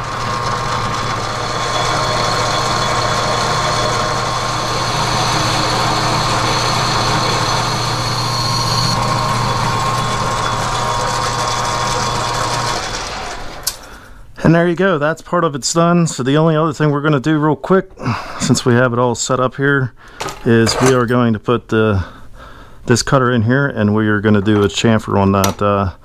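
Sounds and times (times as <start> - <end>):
lathe motor and gear whine: 0.0 - 13.8.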